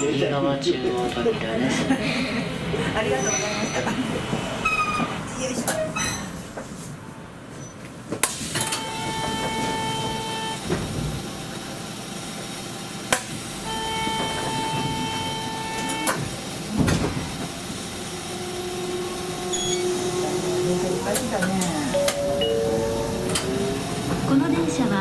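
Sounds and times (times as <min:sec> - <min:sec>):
electric buzzer: 0:13.7 - 0:16.2.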